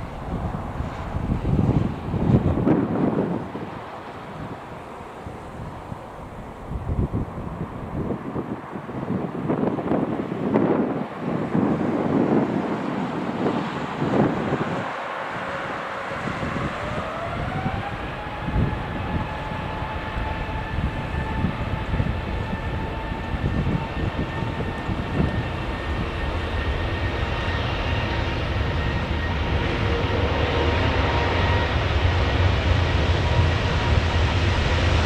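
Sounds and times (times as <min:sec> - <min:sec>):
jet engines spooling up: 0:09.6 - 0:35.0.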